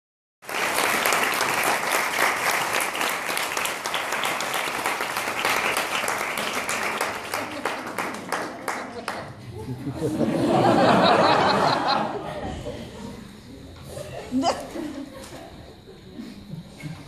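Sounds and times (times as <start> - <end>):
audience applauding: 0.4 - 9.4.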